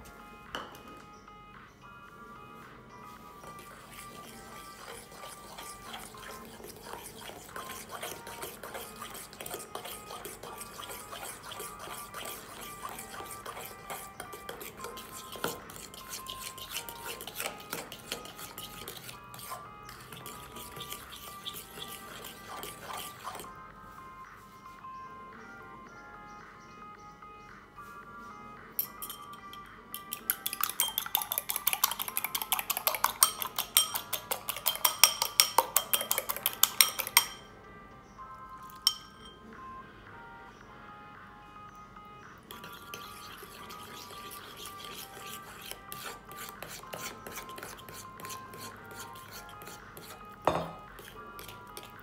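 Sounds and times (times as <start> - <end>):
background music: 0.0 - 52.0
utensil scraping against bowl: 3.4 - 23.5, 28.8 - 37.5, 42.5 - 52.0
utensil stirring thick batter: 3.4 - 23.5, 28.8 - 37.4, 42.5 - 52.0.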